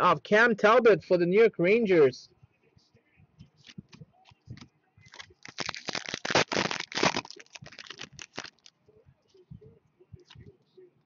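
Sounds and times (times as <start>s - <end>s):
foil wrapper tearing and crinkling: 5.1s - 8.7s.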